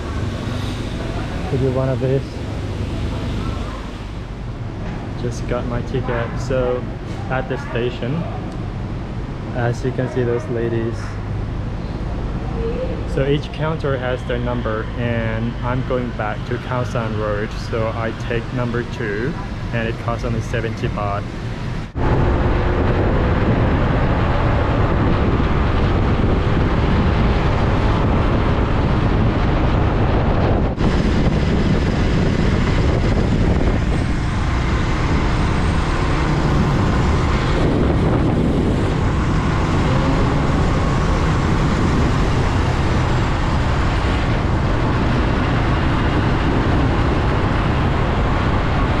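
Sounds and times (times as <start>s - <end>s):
road traffic noise: 0.0s - 49.0s
wind rush on microphone: 0.0s - 49.0s.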